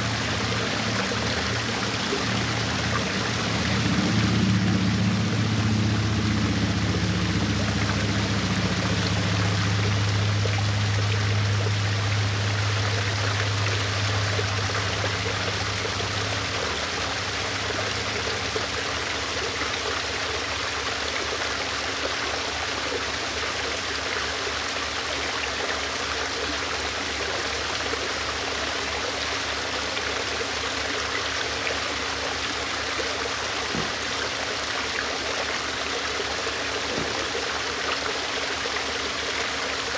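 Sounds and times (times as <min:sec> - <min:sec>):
low hum: 0:00.0 - 0:19.5
waterfall splashing and trickling: 0:00.0 - 0:39.9.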